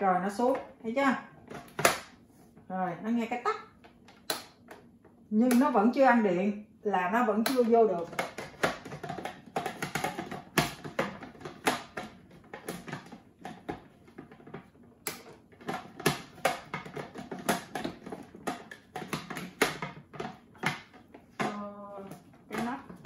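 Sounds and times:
plastic lid clicking and knocking: 0:03.8 - 0:04.9, 0:07.4 - 0:23.0.

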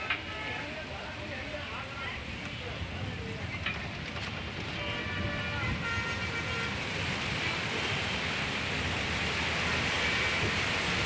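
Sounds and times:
heavy rain: 0:00.0 - 0:11.0
traffic through floodwater: 0:00.0 - 0:11.0
vehicle horn: 0:04.8 - 0:06.9.

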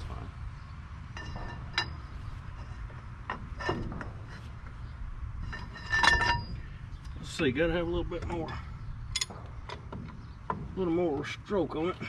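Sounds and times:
ringing metal clanks: 0:01.1 - 0:04.5, 0:05.4 - 0:06.8, 0:08.3 - 0:10.7
wrench clinking on metal nuts: 0:05.5 - 0:06.6, 0:09.1 - 0:09.8.

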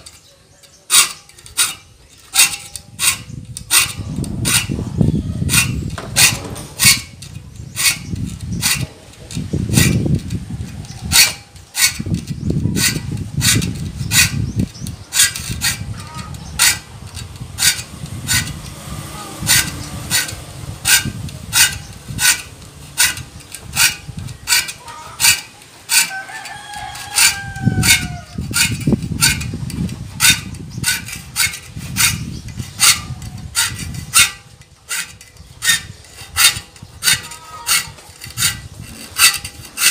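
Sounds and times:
file rasping on saw teeth: 0:00.0 - 0:39.9
rooster crowing: 0:26.0 - 0:28.4.

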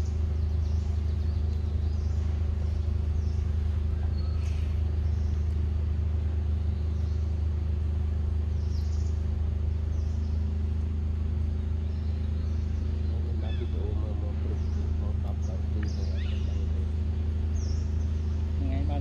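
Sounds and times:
faint bird chirps: 0:00.0 - 0:05.6, 0:06.4 - 0:07.6, 0:08.5 - 0:10.7, 0:11.4 - 0:18.7
low droning hum: 0:00.0 - 0:19.0.

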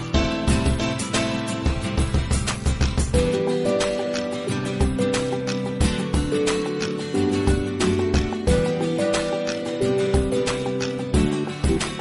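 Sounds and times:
held melodic notes: 0:03.1 - 0:12.0
steady drumbeat: 0:10.2 - 0:12.0.

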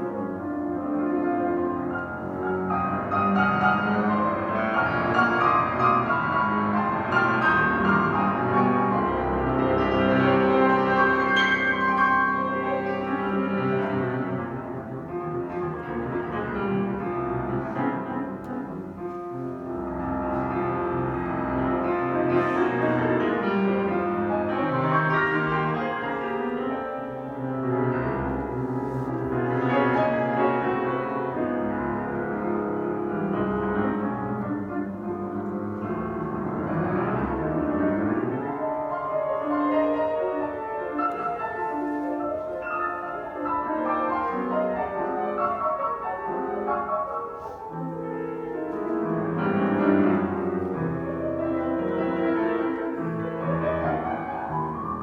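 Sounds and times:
fast solo piano: 0:00.0 - 0:55.0.

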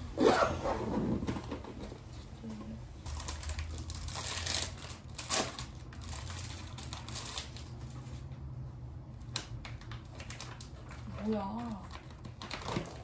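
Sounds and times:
plastic packaging crinkling: 0:03.0 - 0:08.3, 0:09.3 - 0:13.0.

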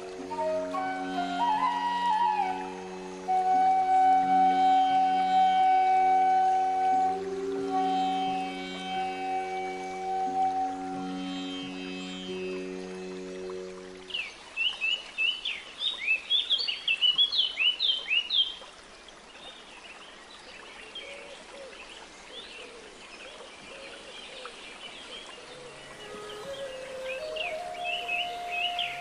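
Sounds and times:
soft sustained music tones: 0:00.0 - 0:15.1, 0:25.0 - 0:29.0.

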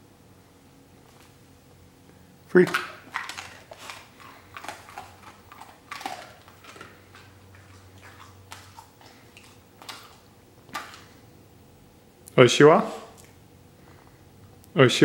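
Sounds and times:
dog chewing treat: 0:02.5 - 0:11.3.

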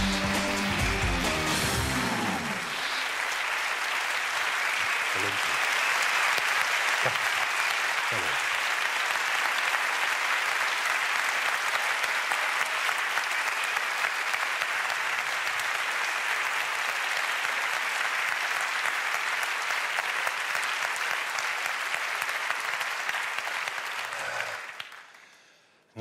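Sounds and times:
audience applauding: 0:00.0 - 0:25.6.

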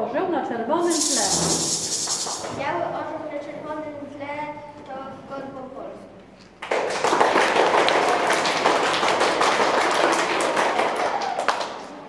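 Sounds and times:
audience applauding: 0:06.6 - 0:11.8.

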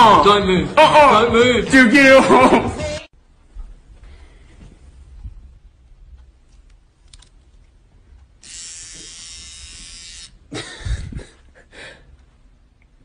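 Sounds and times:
electric hair trimmer buzzing: 0:08.4 - 0:10.4.

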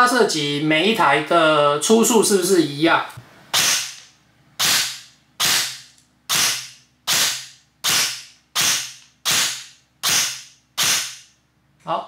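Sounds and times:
airsoft rifle shots: 0:03.5 - 0:04.0, 0:04.6 - 0:11.3.

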